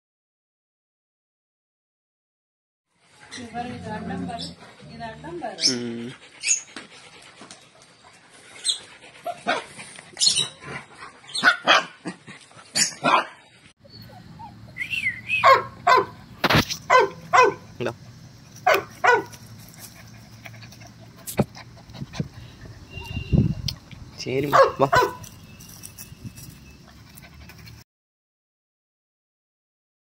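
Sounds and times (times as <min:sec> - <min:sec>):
puppies yipping and barking: 0:04.3 - 0:27.8
puppy whining: 0:13.8 - 0:15.9.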